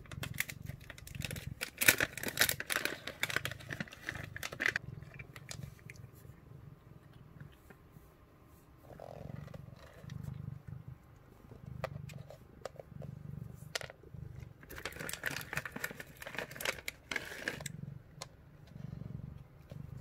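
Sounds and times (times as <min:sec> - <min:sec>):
cat crunching a treat: 0:00.0 - 0:06.4, 0:11.6 - 0:18.9
cat purring: 0:00.0 - 0:20.0.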